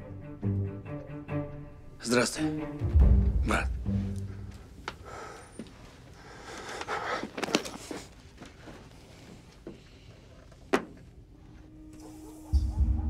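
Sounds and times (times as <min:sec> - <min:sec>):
low music: 0:00.0 - 0:04.8
clothing rustling: 0:05.6 - 0:11.2.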